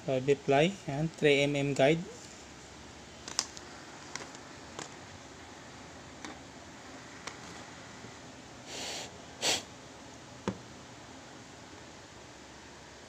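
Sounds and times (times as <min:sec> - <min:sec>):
short hissing: 0:08.6 - 0:09.7.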